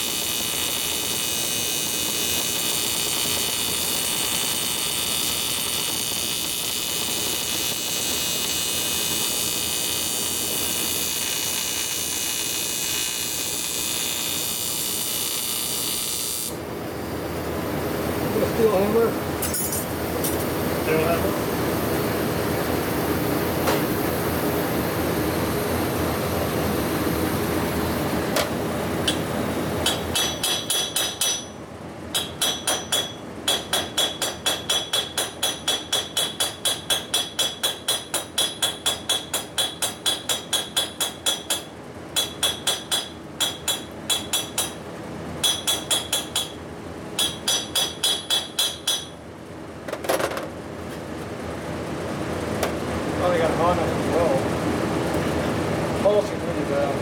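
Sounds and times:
welding arc buzzing: 0:00.0 - 0:16.7
hammer tapping metal: 0:19.4 - 0:20.5, 0:29.8 - 0:44.8, 0:45.4 - 0:46.6, 0:47.2 - 0:49.2.

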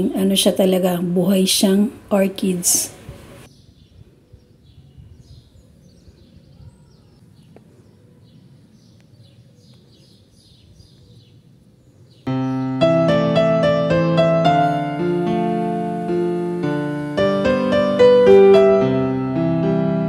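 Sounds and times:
faint bird chirps: 0:03.5 - 0:12.8
piano music: 0:12.3 - 0:20.0.

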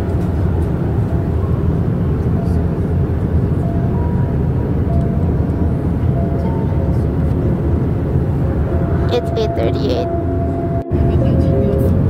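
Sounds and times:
airplane cabin rumble: 0:00.0 - 0:12.0
faint sustained musical notes: 0:08.7 - 0:12.0.

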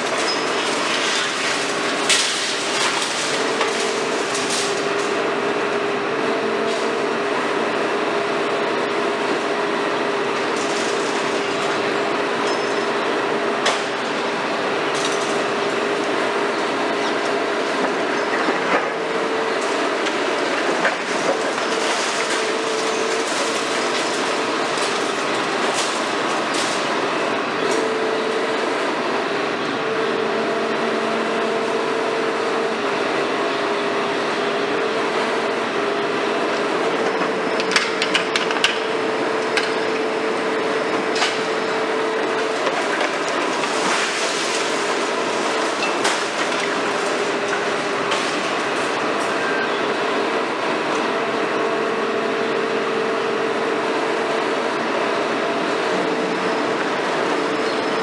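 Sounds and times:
concrete crunching and clattering: 0:00.0 - 0:05.3, 0:10.3 - 0:11.8, 0:17.0 - 0:27.1, 0:40.9 - 0:49.4
excavator machine noise: 0:00.0 - 0:58.0
sharp cracks and knocks: 0:42.4 - 0:49.3.

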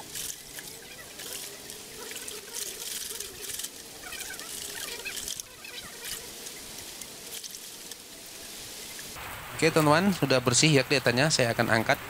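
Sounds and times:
hands scrubbing cable: 0:00.0 - 0:08.0.

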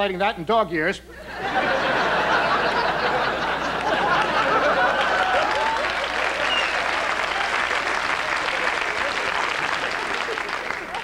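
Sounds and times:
audience laughing: 0:01.2 - 0:11.0
audience applauding: 0:02.0 - 0:11.0.

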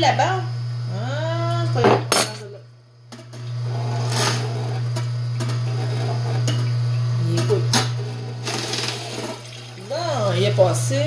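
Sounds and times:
juicer motor humming: 0:00.0 - 0:02.2, 0:03.0 - 0:11.0
produce cracking in juicer: 0:03.1 - 0:10.2.

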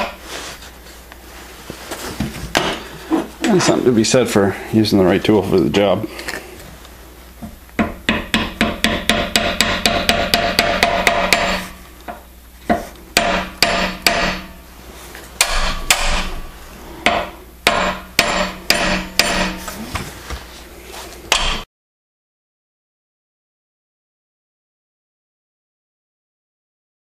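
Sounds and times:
hammer striking chisel on metal: 0:07.8 - 0:14.6, 0:15.4 - 0:16.4, 0:17.0 - 0:19.7, 0:21.3 - 0:21.7.

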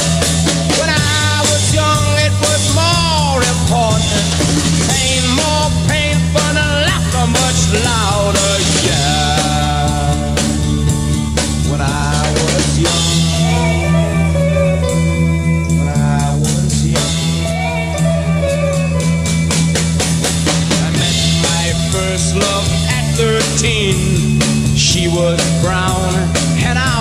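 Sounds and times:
bass: 0:00.0 - 0:27.0
drum kit: 0:00.0 - 0:27.0
electric guitar: 0:00.0 - 0:27.0.

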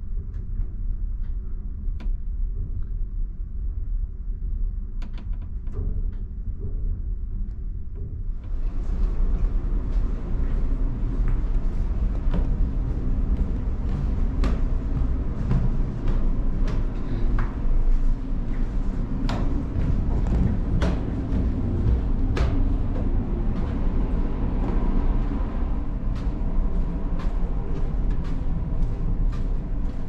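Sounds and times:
footsteps on metal stairs: 0:08.0 - 0:30.0
ship engines rumbling: 0:08.4 - 0:30.0.

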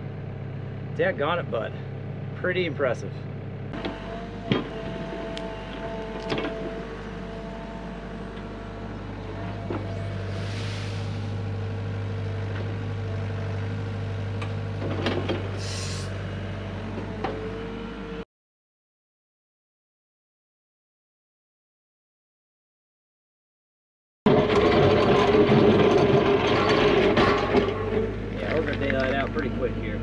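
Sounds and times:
excavator engine drone: 0:00.0 - 0:18.2, 0:24.3 - 0:30.0
clunks: 0:03.7 - 0:10.4, 0:14.3 - 0:15.6, 0:16.9 - 0:17.5, 0:24.3 - 0:29.4
short hisses: 0:10.3 - 0:11.3, 0:15.6 - 0:16.2.

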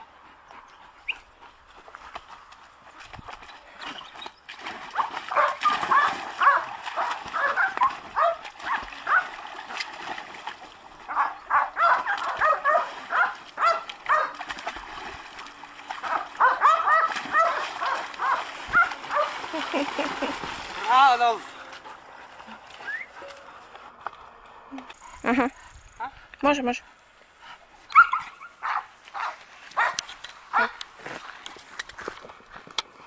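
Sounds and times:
water splashing: 0:02.3 - 0:23.9
dog yelping and barking: 0:05.3 - 0:09.2, 0:11.1 - 0:14.4, 0:16.1 - 0:19.3, 0:27.9 - 0:30.0.

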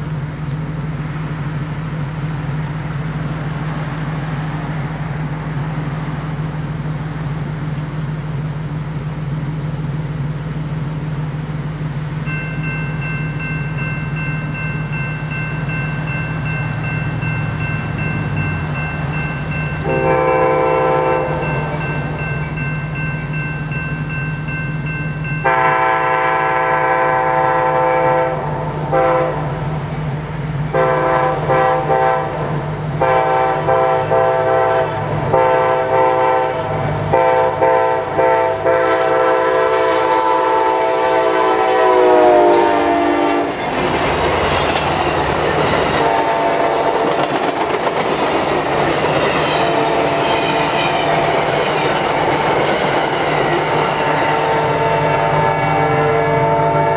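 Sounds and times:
locomotive air horn blasts: 0:19.8 - 0:21.5, 0:25.4 - 0:29.6, 0:30.7 - 0:43.6, 0:46.0 - 0:47.1, 0:49.5 - 0:51.4, 0:53.9 - 0:56.9
passenger cars clattering over rail joints: 0:43.5 - 0:55.4.

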